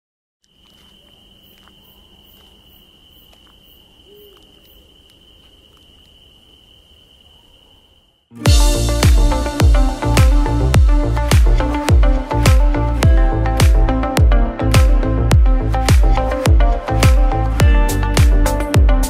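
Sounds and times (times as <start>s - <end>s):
crickets trilling: 0.4s - 8.4s
loud music with heavy bass: 8.4s - 19.0s.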